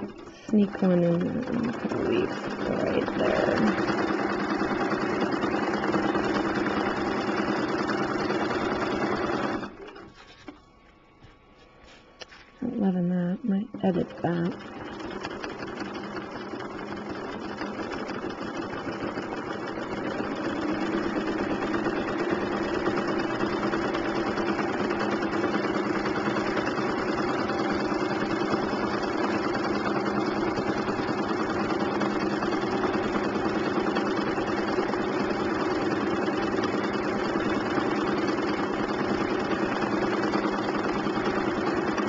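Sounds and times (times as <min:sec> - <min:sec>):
sewing machine stitching: 0:00.0 - 0:10.2, 0:13.7 - 0:42.0.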